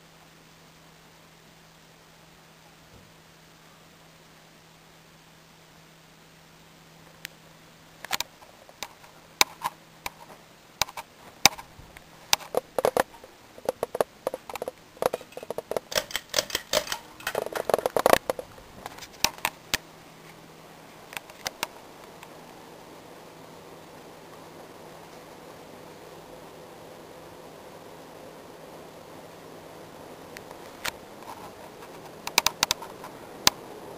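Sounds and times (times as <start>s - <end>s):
fan motor hum: 0.0s - 33.9s
light kit clicks and knocks: 12.4s - 18.4s.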